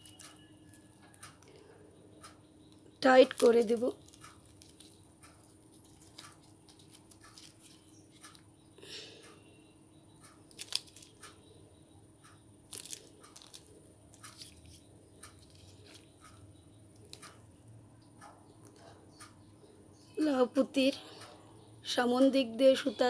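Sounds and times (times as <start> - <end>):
beads clicking together: 2.6 - 8.4, 10.2 - 11.4, 12.3 - 17.4
gloved hands rustling: 3.4 - 8.4.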